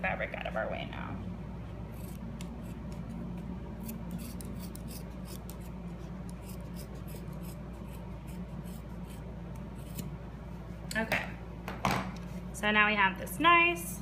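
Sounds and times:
scissors snipping fabric: 3.8 - 10.1.

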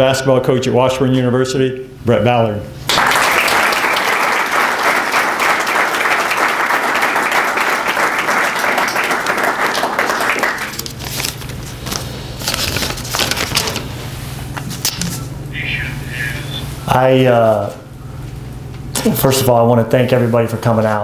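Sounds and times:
audience applauding: 2.9 - 10.9.

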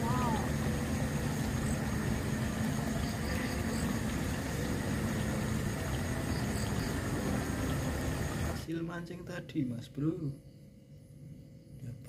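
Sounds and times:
stream rushing: 0.0 - 8.6.

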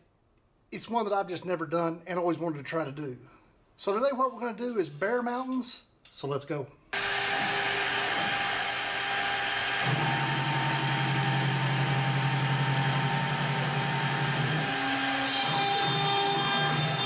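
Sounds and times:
spindle fan rushing and whine: 7.0 - 17.0.

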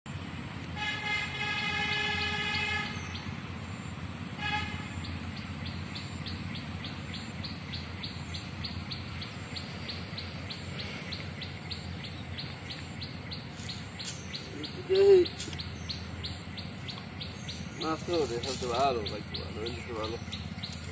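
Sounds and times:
low background rumble: 0.1 - 20.9
horn-like tone: 0.8 - 3.1, 4.4 - 5.0
bird chirping: 1.7 - 20.9.

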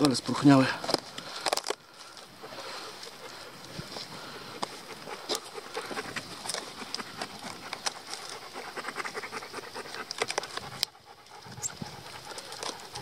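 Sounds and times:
dry wood cracking and snapping: 0.0 - 2.4, 4.6 - 8.5, 9.8 - 11.0, 12.0 - 13.0.

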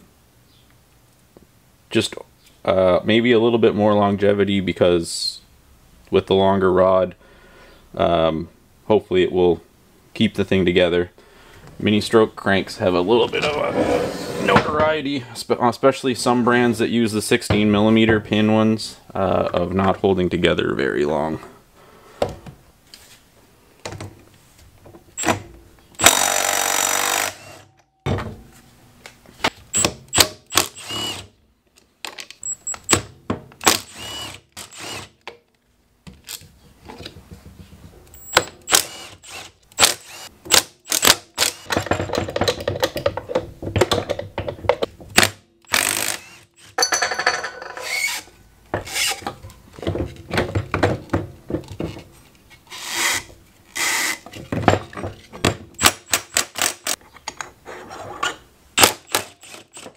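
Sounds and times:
impact wrench hammering: 26.0 - 27.4.

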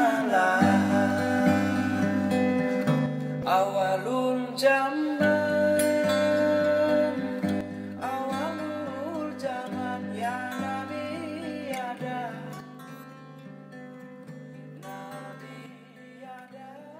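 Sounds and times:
person singing: 0.0 - 12.7
guitars and ukulele strumming: 0.0 - 16.0.

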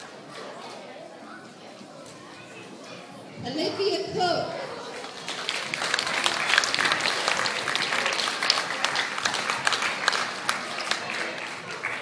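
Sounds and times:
audience applauding: 5.0 - 12.0.

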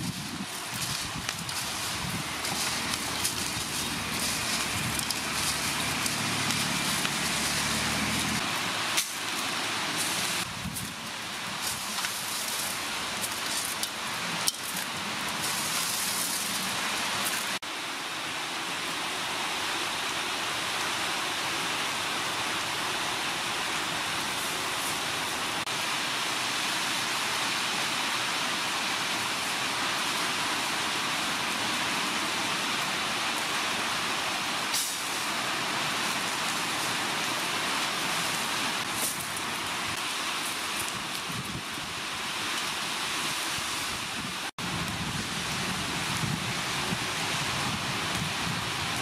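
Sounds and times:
steady rushing hiss: 0.0 - 49.0.

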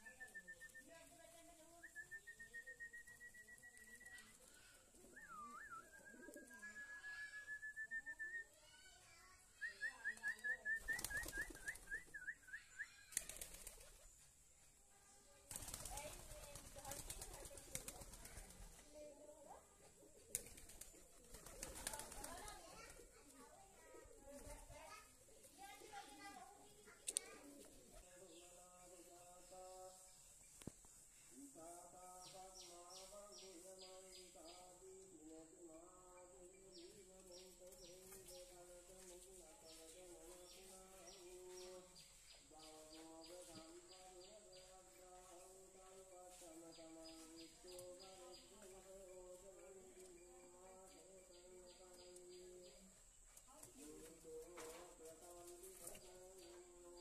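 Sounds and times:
pigeons cooing softly: 3.5 - 7.3
pigeons flapping wings: 10.2 - 12.2, 13.1 - 14.1, 15.5 - 18.9, 20.3 - 23.0
bird chirping: 31.9 - 57.0.

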